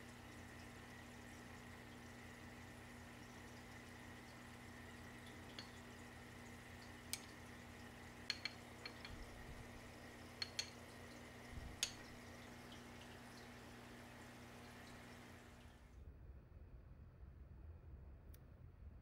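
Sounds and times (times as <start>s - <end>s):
faint steady hum: 0.0s - 19.0s
metal spoon clicking on glass jar: 8.3s - 9.3s, 10.4s - 10.8s.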